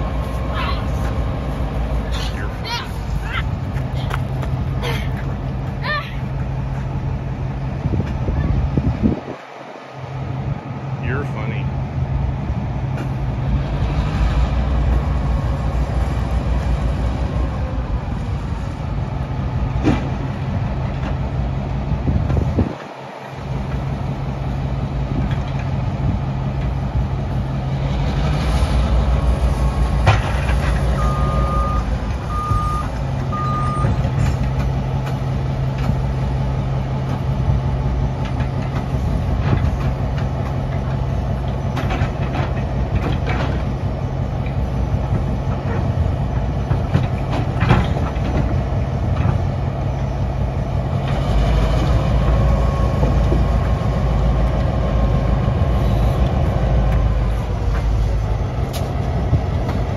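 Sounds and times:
diesel locomotive engine running: 0.0s - 59.9s
short electronic beeps: 31.0s - 34.0s.

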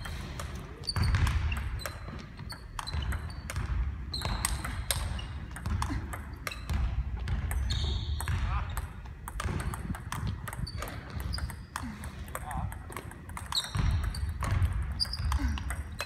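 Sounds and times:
sneaker squeaks on wooden floor: 0.7s - 5.6s, 6.3s - 9.1s, 10.5s - 11.7s, 13.4s - 16.0s
ping pong ball clicking: 8.2s - 16.0s.

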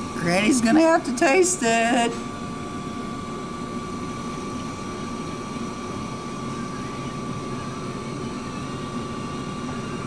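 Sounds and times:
dining room hum and hiss: 0.0s - 10.0s
thin steady high tone: 4.4s - 10.0s.

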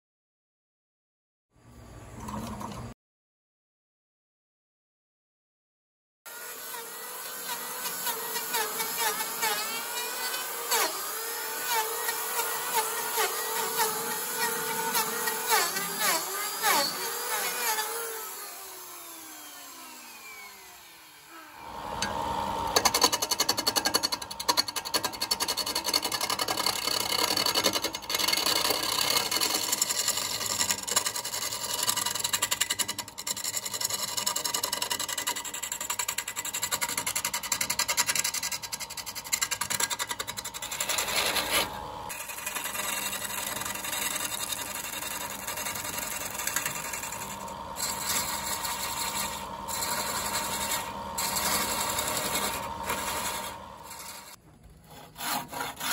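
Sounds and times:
tool scraping spinning wood: 6.3s - 55.9s
wood lathe running: 6.3s - 55.9s
motor winding down whine: 7.5s - 23.0s, 40.7s - 54.4s.

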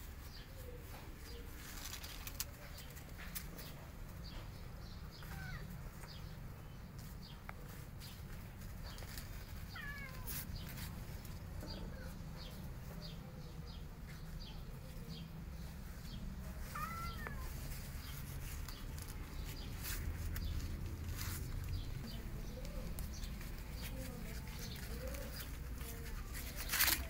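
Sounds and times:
kitten mewing: 16.7s - 17.6s.

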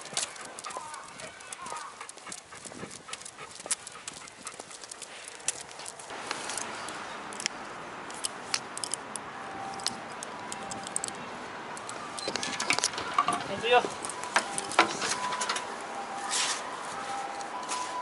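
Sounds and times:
dog footfalls clicking: 0.0s - 6.1s
leash hardware clinking: 0.0s - 18.0s.

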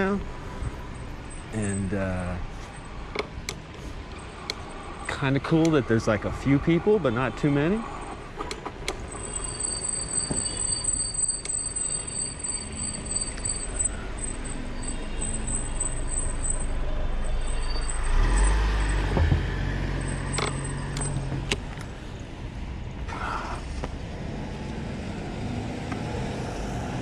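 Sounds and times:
wind and road noise rumble: 0.0s - 27.0s
vehicle engine passing close: 13.9s - 21.5s.

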